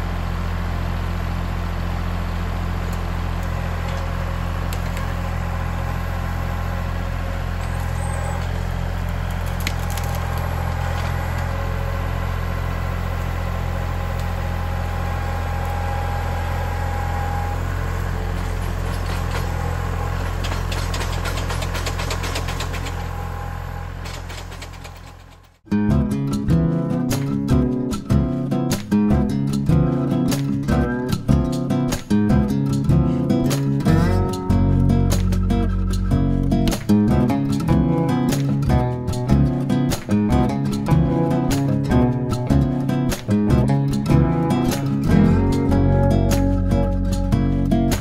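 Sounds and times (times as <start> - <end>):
tractor diesel engine running: 0.0 - 48.0.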